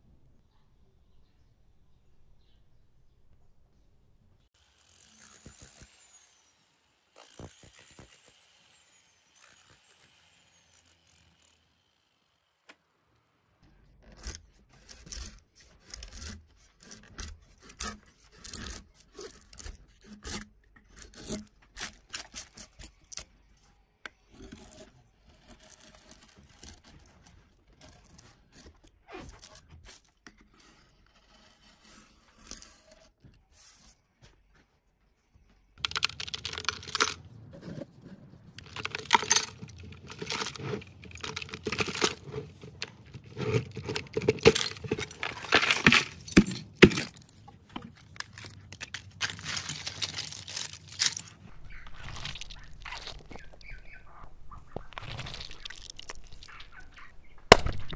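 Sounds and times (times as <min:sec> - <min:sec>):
gouge scraping wood: 0:30.4 - 0:33.2, 0:35.8 - 0:51.4
hard pieces clinking and scraping: 0:35.8 - 0:37.2, 0:38.6 - 0:51.5.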